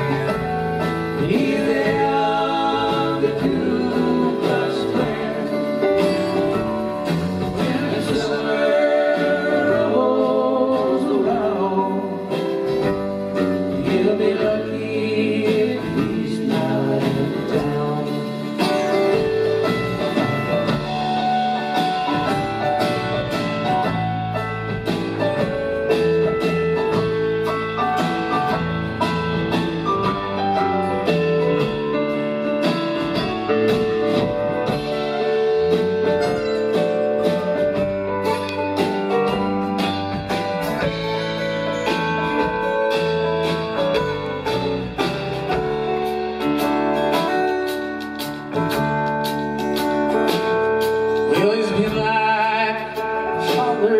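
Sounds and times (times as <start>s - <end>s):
person singing: 0.0s - 19.4s, 51.2s - 53.9s
country-rock band playing: 0.0s - 53.9s.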